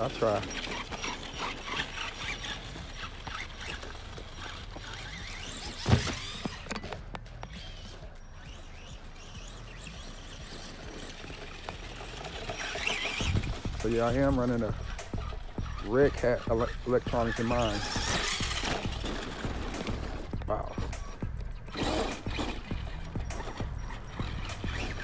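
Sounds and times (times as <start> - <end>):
toy truck motor whirring: 0.0 - 25.0
loud thump: 5.8 - 6.3.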